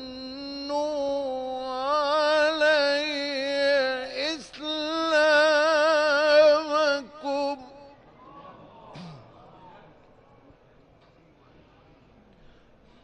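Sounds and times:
man reciting melodically: 0.0s - 8.0s.

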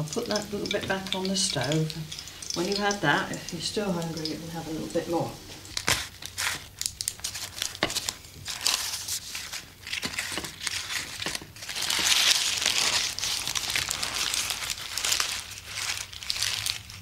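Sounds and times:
paper and cloth crinkling: 4.2s - 17.0s.

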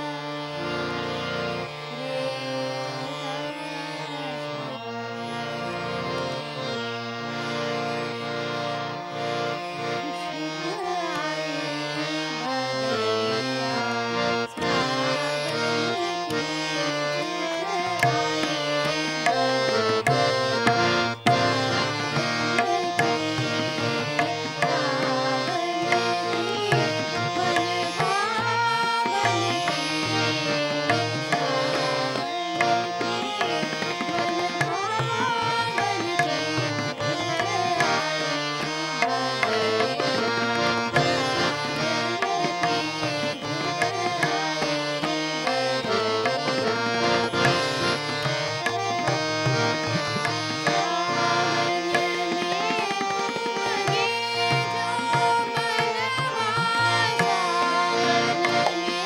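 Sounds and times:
plucked veena melody: 0.0s - 59.0s
tabla drums: 17.8s - 59.0s.

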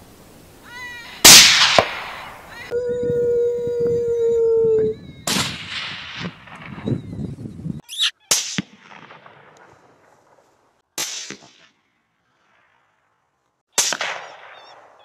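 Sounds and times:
rifle shots: 1.3s - 2.2s, 13.8s - 15.0s.

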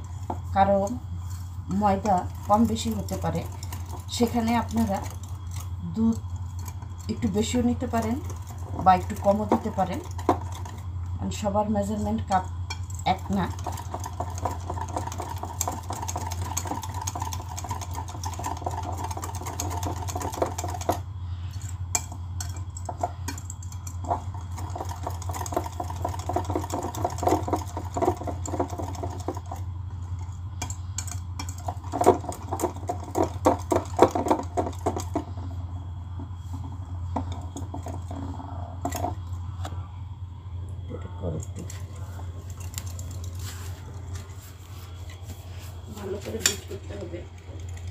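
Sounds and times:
whisk clicking against glass bowl: 12.0s - 21.0s, 21.9s - 29.6s
low hum: 35.0s - 47.9s.

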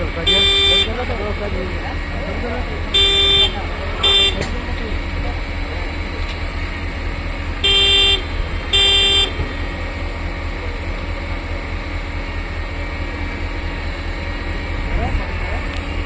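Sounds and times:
machine horn toots: 0.2s - 1.2s, 2.9s - 4.6s, 7.6s - 9.5s.

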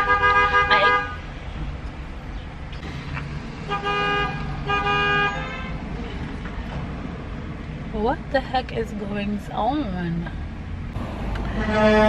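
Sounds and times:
car horns honking: 0.0s - 1.3s, 3.6s - 5.9s, 11.1s - 12.0s
car rumbling on road: 0.0s - 12.0s.

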